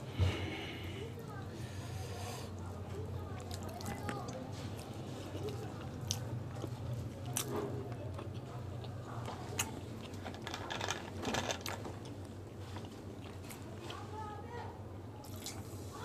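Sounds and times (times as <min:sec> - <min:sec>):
man chewing food: 0:03.3 - 0:14.0, 0:15.2 - 0:15.9.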